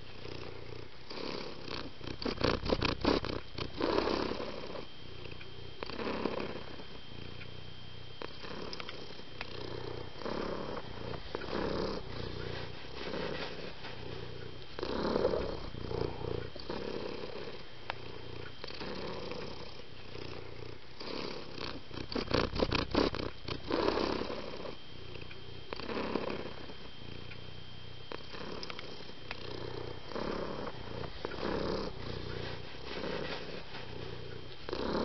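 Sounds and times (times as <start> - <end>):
cat purring: 0.0 - 35.0
crackling clicks: 28.1 - 29.4.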